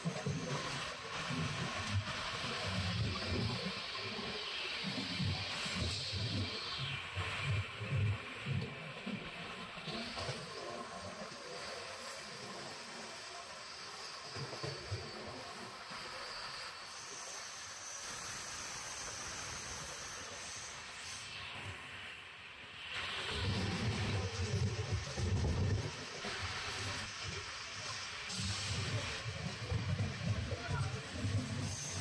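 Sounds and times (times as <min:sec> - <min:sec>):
rushing hiss of air: 0:10.0 - 0:22.2, 0:22.8 - 0:32.0
moving train running noise: 0:22.9 - 0:32.0.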